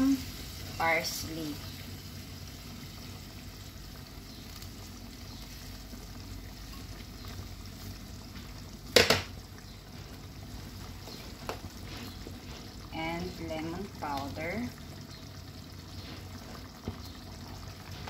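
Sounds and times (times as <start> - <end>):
stew bubbling and sizzling: 0.0 - 18.0
kitchenware clacking: 9.0 - 9.3.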